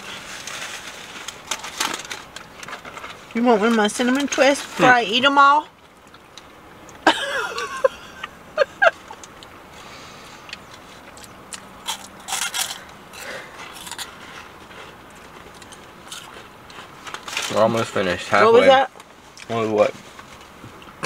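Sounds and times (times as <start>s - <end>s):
paper wrappers crinkling: 0.0s - 4.8s
crunchy food chewing: 10.3s - 17.6s.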